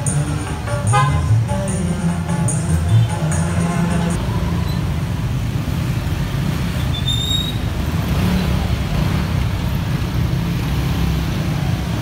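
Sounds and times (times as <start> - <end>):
traffic engines rumbling: 0.0 - 12.0.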